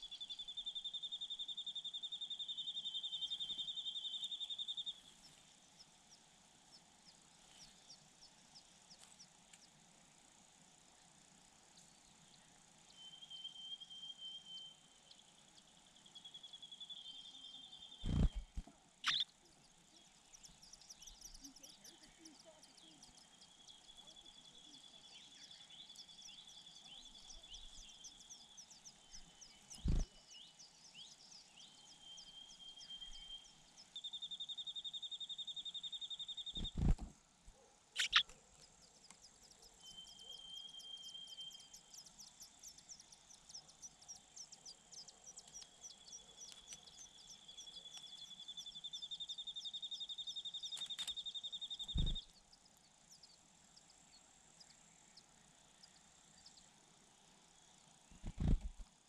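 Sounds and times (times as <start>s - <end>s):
insects buzzing pulsed trill: 39.6s - 53.9s.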